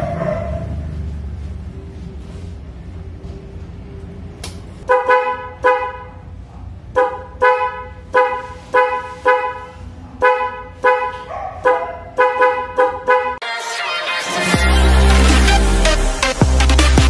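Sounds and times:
scooter horn toots: 0:04.8 - 0:06.3, 0:06.9 - 0:13.4.

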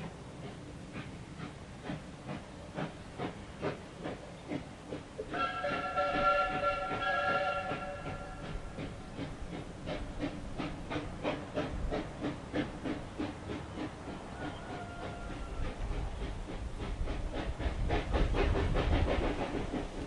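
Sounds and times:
locomotive exhaust chuffing: 0:00.0 - 0:20.0
steam whistle: 0:05.3 - 0:08.5.

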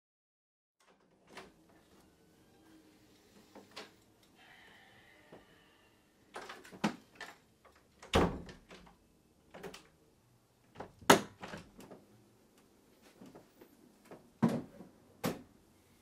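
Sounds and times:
wooden door shutting with thud: 0:08.1 - 0:08.8.

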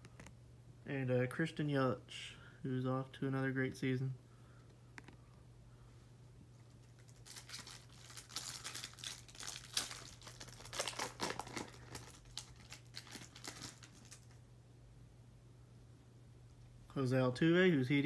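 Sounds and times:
foil wrapper crinkling and tearing: 0:06.8 - 0:14.4.

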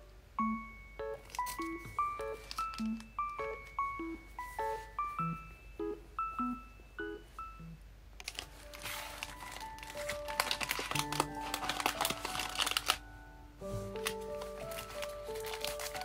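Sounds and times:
soft keyboard music: 0:00.0 - 0:16.0
packaging crinkling: 0:01.2 - 0:03.7, 0:08.2 - 0:13.1, 0:13.7 - 0:16.0.

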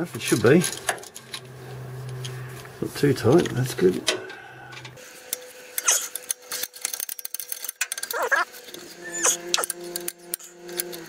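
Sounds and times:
nuts squeaking on threads: 0:07.9 - 0:09.8.

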